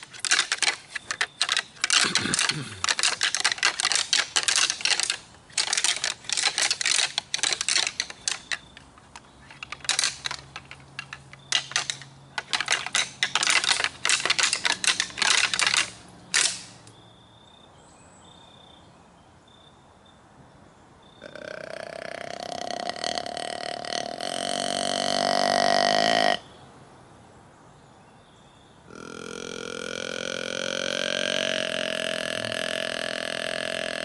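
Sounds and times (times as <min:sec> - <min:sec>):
hard objects clattering: 0:00.0 - 0:16.9.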